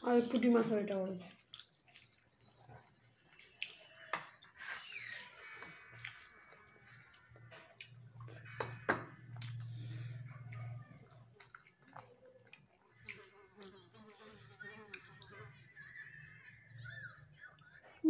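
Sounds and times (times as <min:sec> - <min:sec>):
fingers mixing wet food: 0:00.4 - 0:16.7.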